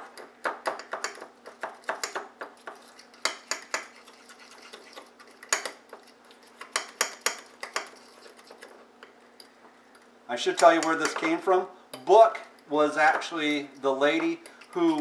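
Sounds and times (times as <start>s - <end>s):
fork scraping ceramic bowl: 2.6s - 7.0s, 7.8s - 8.7s.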